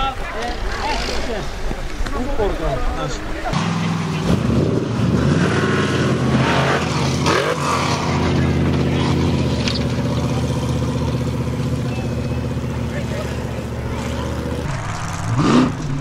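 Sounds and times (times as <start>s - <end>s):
buggy engine revving hard: 3.6s - 16.0s.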